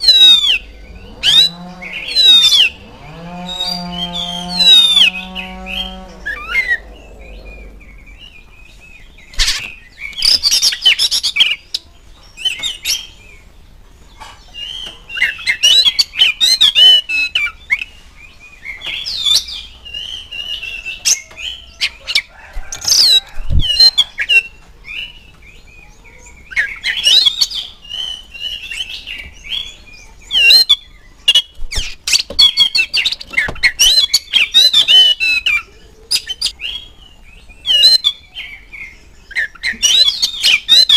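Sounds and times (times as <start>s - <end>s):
bird singing whistled phrases: 0.0s - 2.8s, 3.5s - 8.2s, 14.6s - 17.9s, 25.8s - 40.9s.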